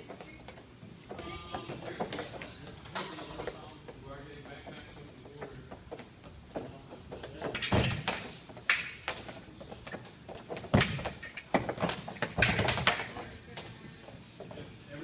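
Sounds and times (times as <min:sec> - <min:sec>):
shoe squeak: 0:00.0 - 0:02.6, 0:07.1 - 0:08.0, 0:10.3 - 0:11.4, 0:12.0 - 0:14.3.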